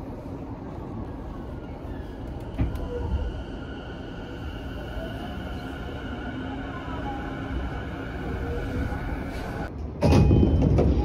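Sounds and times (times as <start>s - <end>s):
low rumble inside train carriage: 0.0s - 11.0s.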